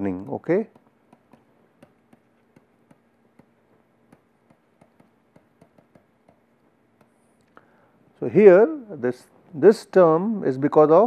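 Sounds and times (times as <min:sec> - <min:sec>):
stylus ticking on pen tablet: 0:00.5 - 0:07.2.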